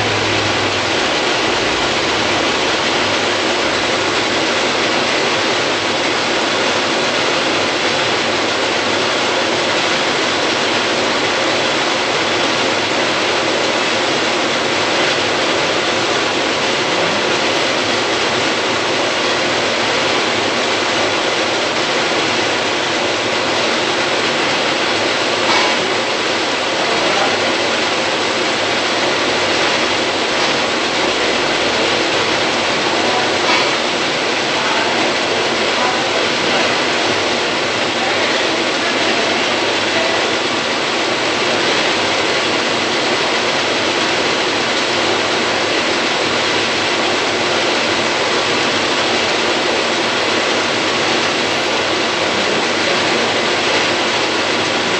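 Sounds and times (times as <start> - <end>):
metal lathe running: 0.0 - 54.9.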